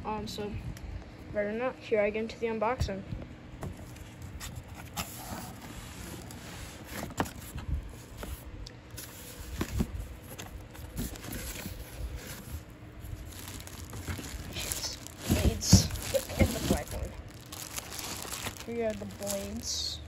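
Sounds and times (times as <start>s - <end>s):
cardboard rustling and scraping: 3.6s - 19.9s.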